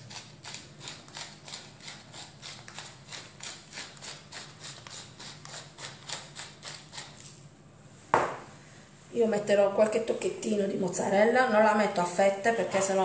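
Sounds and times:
pepper mill grinding: 0:00.0 - 0:07.4.

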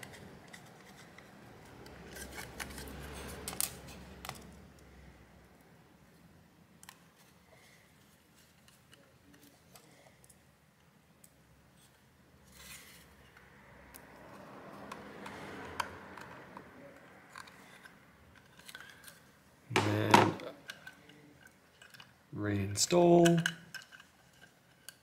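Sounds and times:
screwdriver clicks and metal scraping: 0:00.0 - 0:04.5, 0:14.9 - 0:19.2, 0:20.6 - 0:22.1, 0:23.0 - 0:25.0
thump and scrape: 0:19.7 - 0:20.5.

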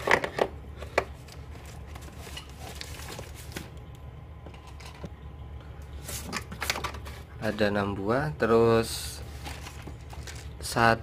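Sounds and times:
plastic-wrapped box rustling: 0:01.2 - 0:03.7, 0:09.2 - 0:10.6.

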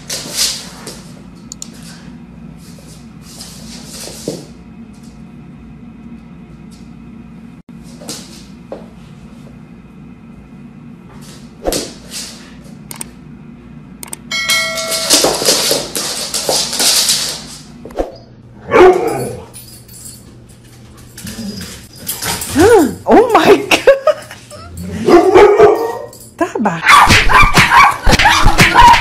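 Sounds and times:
low room hum: 0:00.0 - 0:29.0
animals tussling on wooden floor: 0:20.3 - 0:22.8.

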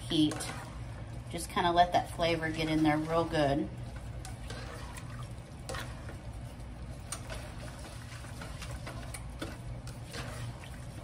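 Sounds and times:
spatula scraping a pan: 0:00.0 - 0:01.0, 0:02.3 - 0:11.0
low steady hum: 0:00.0 - 0:11.0
wet sloshing and squelching: 0:02.3 - 0:11.0.

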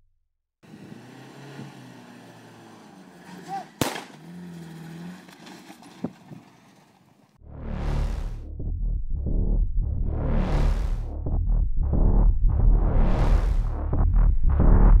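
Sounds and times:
rifle shot: 0:03.8 - 0:04.2.

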